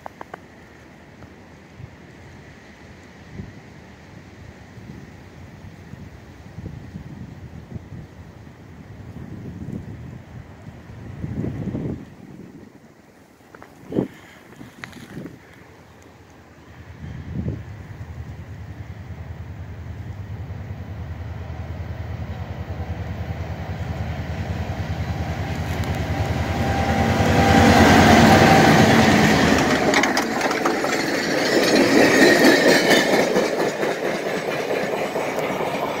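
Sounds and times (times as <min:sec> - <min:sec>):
diesel locomotive engine rumble: 0:00.0 - 0:36.0
train wheels clattering on rails: 0:24.1 - 0:36.0.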